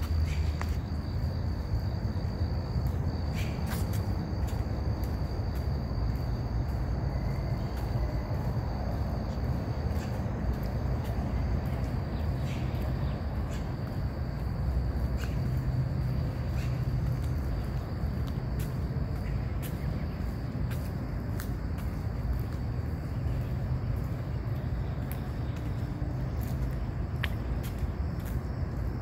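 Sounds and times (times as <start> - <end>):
light ticks: 20.7 - 22.6.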